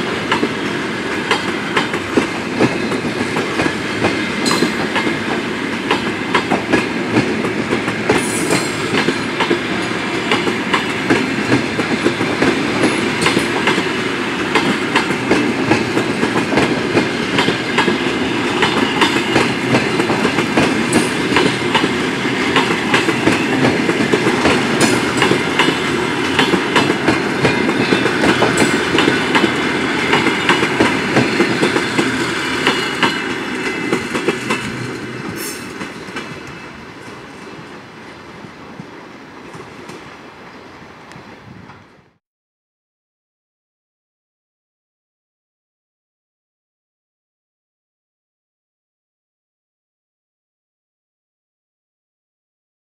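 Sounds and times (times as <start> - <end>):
train rumble: 0.0 - 42.2
train wheels clacking over rail joints: 0.1 - 37.6.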